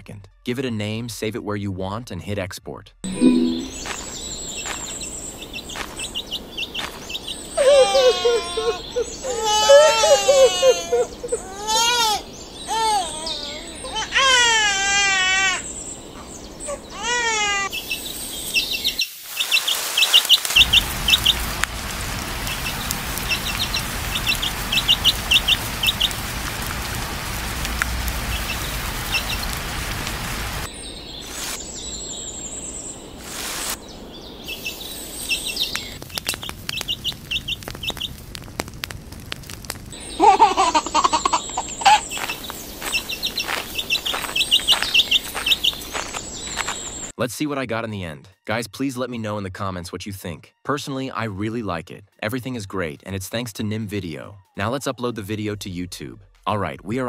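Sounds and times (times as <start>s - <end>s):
outdoor background hiss: 3.2s - 39.2s, 39.8s - 47.2s
chick peeping: 17.8s - 21.4s, 22.5s - 26.2s, 34.5s - 38.1s, 40.0s - 47.1s.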